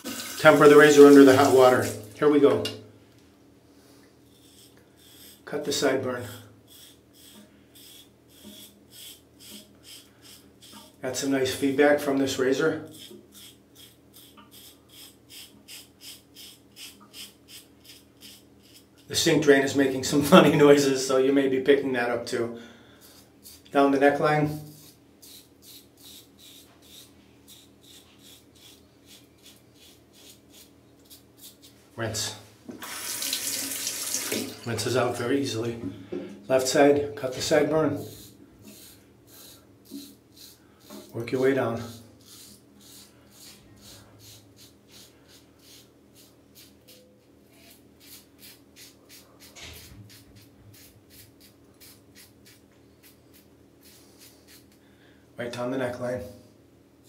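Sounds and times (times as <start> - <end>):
razor scraping stubble: 4.2 - 6.0, 6.7 - 19.2, 23.0 - 31.8, 36.5 - 54.8.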